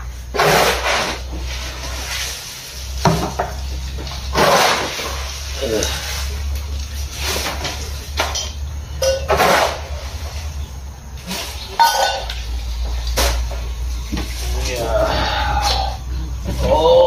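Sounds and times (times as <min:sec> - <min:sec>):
shovel scraping floor: 0:00.0 - 0:03.4, 0:04.1 - 0:16.9
low steady hum: 0:00.0 - 0:17.0
fodder tipped into metal wheelbarrow: 0:07.2 - 0:10.3.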